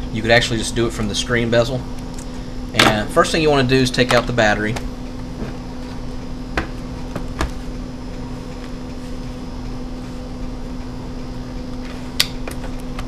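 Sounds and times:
steady electrical hum: 0.0 - 13.0
laptop knocking on desk: 6.6 - 7.6.

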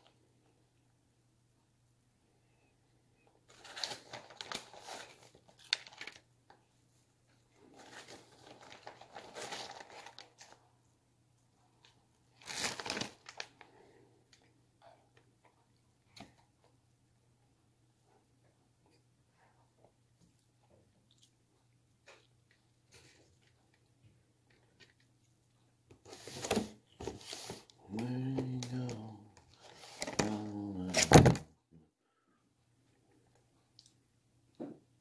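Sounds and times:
snack packaging crinkling: 3.5 - 6.3, 7.7 - 10.6, 11.8 - 13.7.

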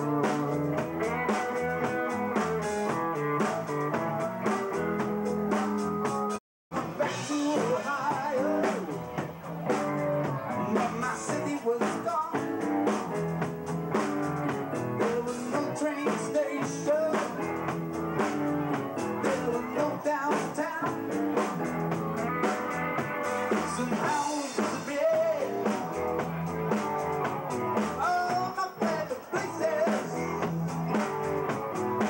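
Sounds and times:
steady drum beat: 0.0 - 32.0.

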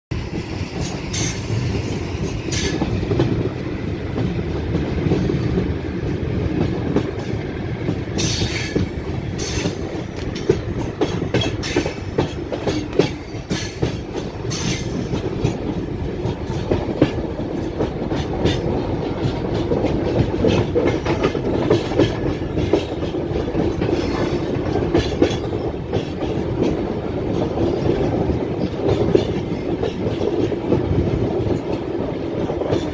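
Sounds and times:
train wheels rumbling on rails: 0.1 - 32.9.

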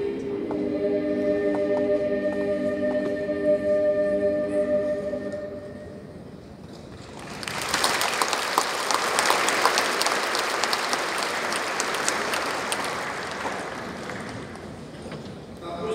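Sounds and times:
audience applause: 7.0 - 15.0.

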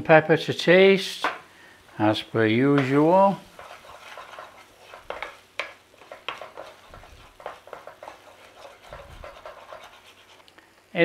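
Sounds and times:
wooden spoon scraping a pan: 2.6 - 10.4.

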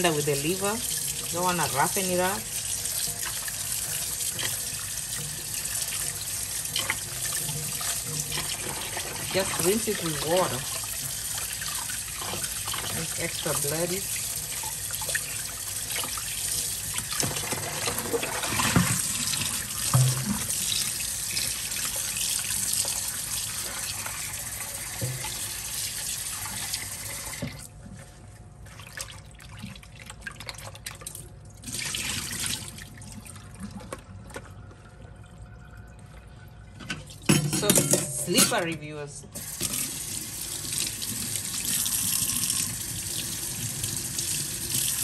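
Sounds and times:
water sloshing and dripping: 0.0 - 37.6
tap running into a bowl: 17.1 - 20.9, 24.9 - 25.4.

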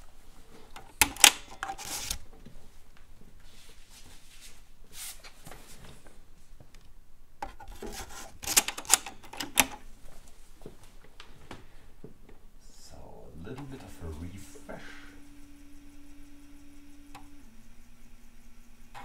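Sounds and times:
disk scraping slide: 0.7 - 2.2, 7.4 - 9.8
sharp plastic clicks: 6.7 - 9.8.

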